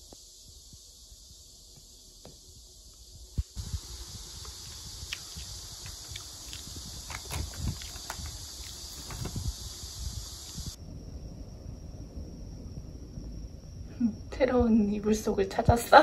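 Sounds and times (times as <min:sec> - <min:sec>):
steady hiss: 0:00.0 - 0:16.0
soft crunchy chewing: 0:03.5 - 0:09.7
foil snack bag crinkling: 0:05.0 - 0:09.4.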